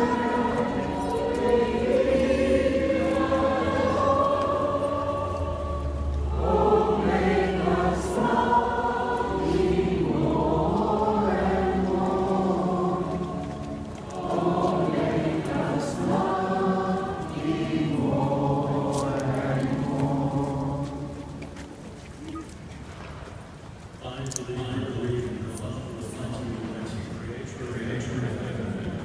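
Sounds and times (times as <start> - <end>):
crowd singing a hymn: 0.0 - 21.9.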